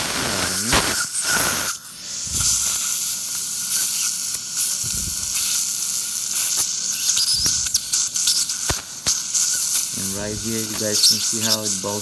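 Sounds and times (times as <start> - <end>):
suction crackles: 0.0 - 3.0
suction tip hissing: 0.0 - 12.0.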